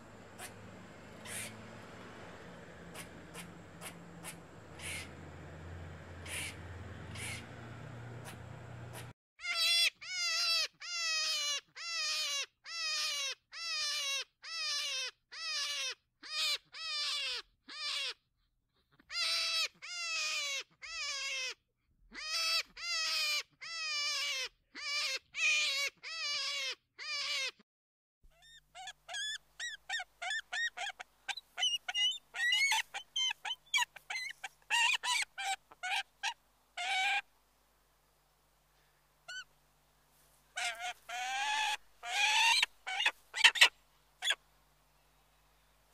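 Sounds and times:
falling animal calls: 0.0 - 2.2, 2.8 - 10.2, 28.5 - 37.3, 40.5 - 44.4
eagle chattering chirps: 1.2 - 1.5, 2.9 - 5.2, 6.2 - 7.5, 28.4 - 37.2, 40.6 - 44.4.

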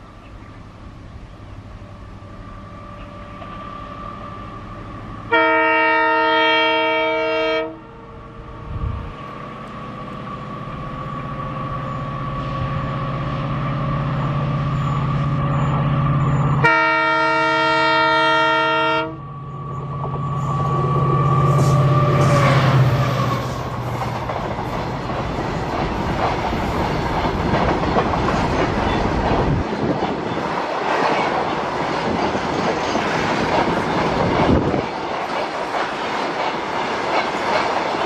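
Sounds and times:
diesel locomotive engine rumble: 0.0 - 38.0
train air horn blasts: 5.3 - 8.2, 16.6 - 19.3, 20.5 - 23.7.

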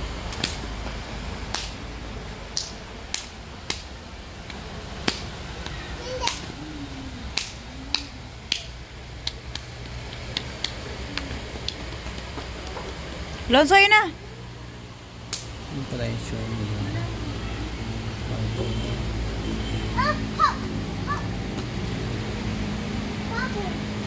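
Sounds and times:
outdoor background noise: 0.0 - 24.0
distant child's voice: 16.8 - 18.0.

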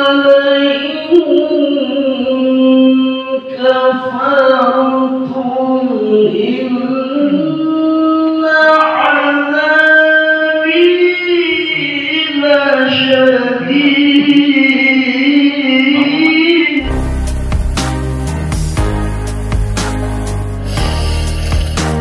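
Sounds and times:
man chanting into a microphone: 0.0 - 16.8.

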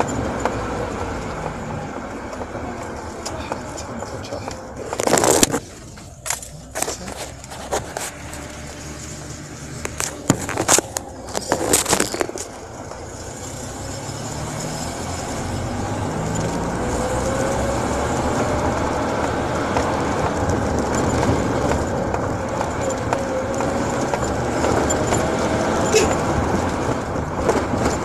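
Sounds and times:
sharp clicks and knocks: 0.0 - 13.0, 19.2 - 25.5
car engine from inside cabin: 0.0 - 28.0.

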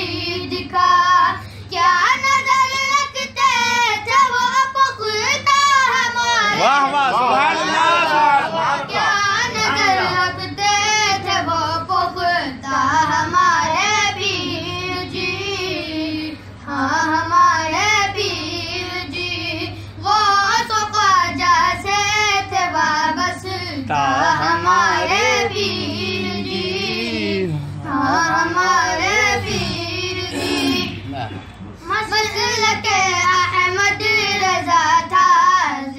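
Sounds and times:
steady low hum: 0.0 - 35.9
person singing devotional song: 8.7 - 31.1.

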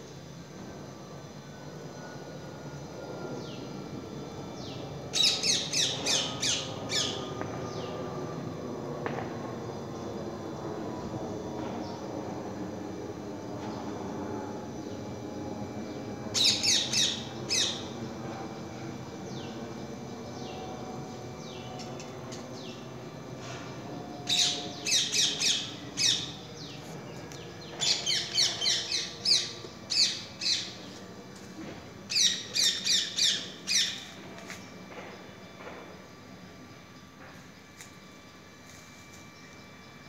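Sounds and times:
parakeet screeching: 5.2 - 7.2, 32.1 - 34.0.

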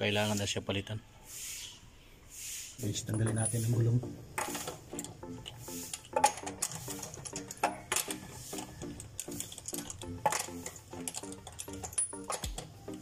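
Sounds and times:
background music: 2.8 - 13.0
socket ratchet clicking: 4.3 - 13.0
sharp metal clicks: 4.4 - 13.0.

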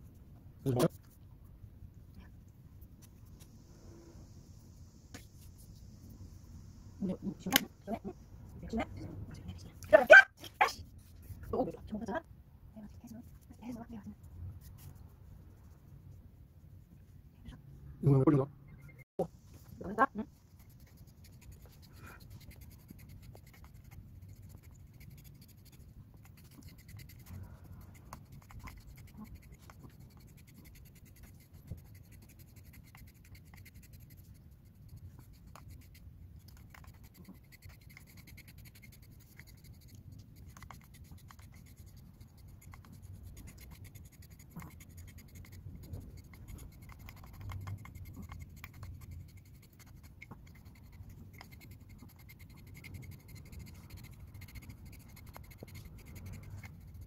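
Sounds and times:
metal comb scraping dog's coat: 20.6 - 57.0.

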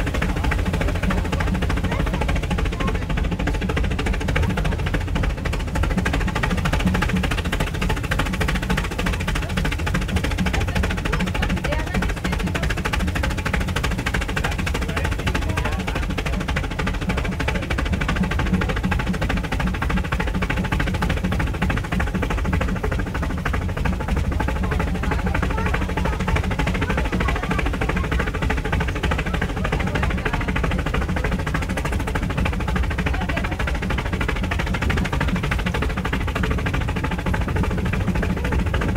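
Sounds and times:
steam train clattering on track: 0.0 - 38.9.

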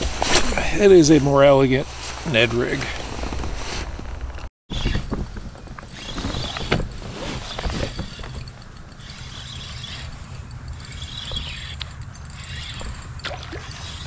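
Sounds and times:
fishing reel clicks and knocks: 7.8 - 14.0.

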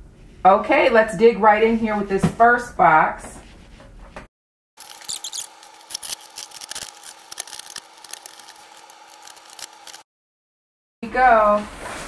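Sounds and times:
scissors cutting tape and cardboard: 4.8 - 10.1.

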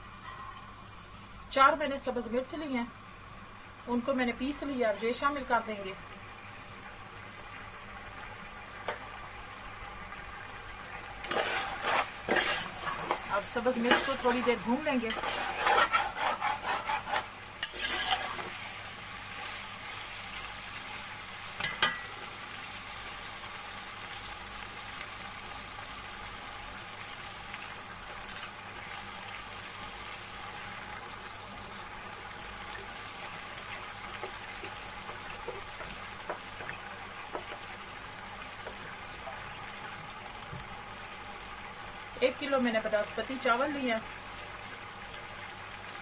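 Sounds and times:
vegetables sizzling in oil: 0.0 - 46.0
metal utensil scraping pot: 11.2 - 18.6.

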